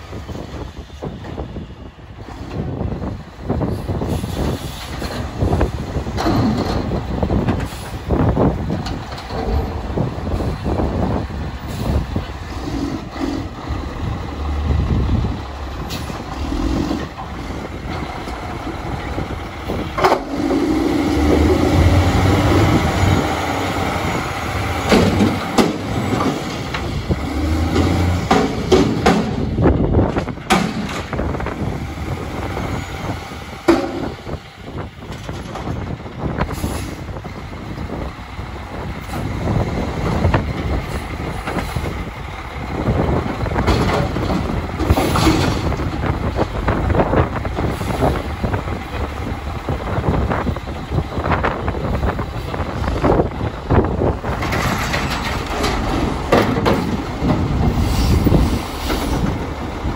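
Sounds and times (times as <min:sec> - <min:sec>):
garbage truck engine rumble: 0:00.0 - 0:59.9
metallic clanks and knocks: 0:06.1 - 0:07.7, 0:27.6 - 0:31.4, 0:54.3 - 0:57.8.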